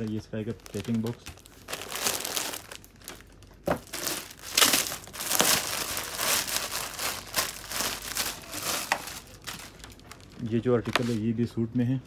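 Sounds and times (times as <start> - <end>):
plastic wrapping crinkling: 0.0 - 11.3.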